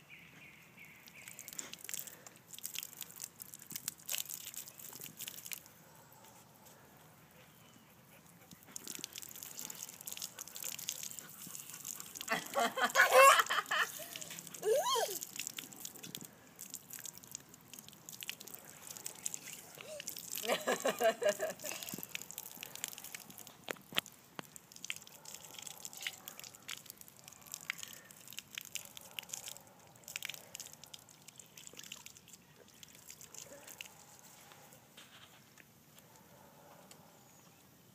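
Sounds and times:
water spattering from hose: 0:01.0 - 0:05.7, 0:08.7 - 0:33.8
toddler's voice: 0:14.6 - 0:15.3, 0:19.7 - 0:20.1.

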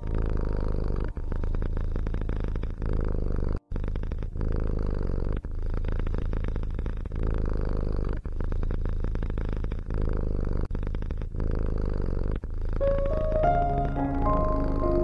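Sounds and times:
cat purring: 0:00.0 - 0:15.0
soft music notes: 0:12.8 - 0:15.0.

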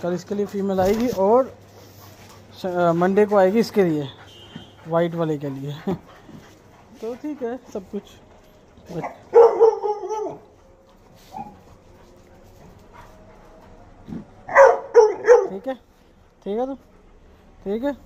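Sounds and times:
dogs barking: 0:08.9 - 0:11.9, 0:14.1 - 0:15.7.

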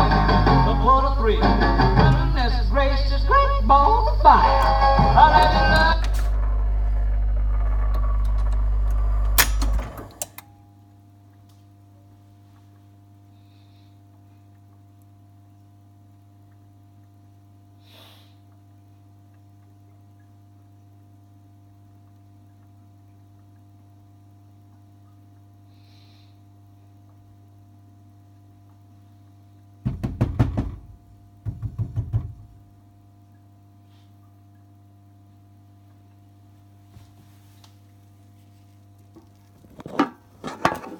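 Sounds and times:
jukebox record playing: 0:00.0 - 0:10.3
jukebox humming quietly: 0:00.0 - 0:40.9
quick mechanical clicks: 0:07.2 - 0:10.5
sharp mechanical click: 0:08.0 - 0:10.5.

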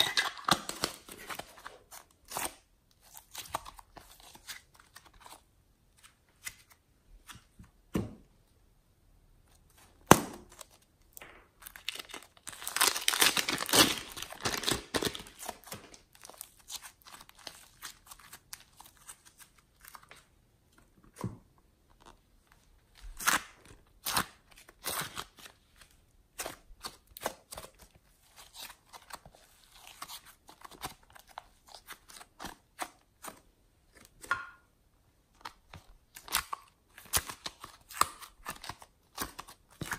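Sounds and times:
slime crackling and tearing: 0:10.0 - 0:20.0.

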